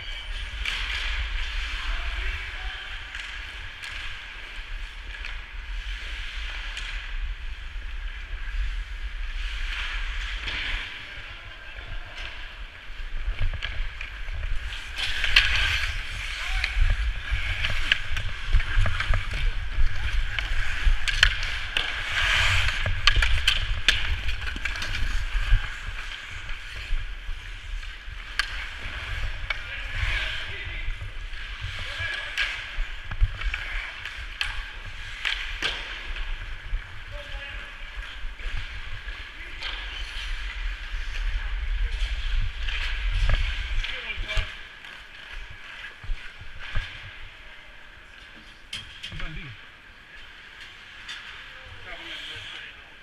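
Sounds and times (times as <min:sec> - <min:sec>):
hockey sticks and puck clacking: 0:00.0 - 0:08.7, 0:09.5 - 0:47.3
skate blades scraping ice: 0:12.0 - 0:48.6.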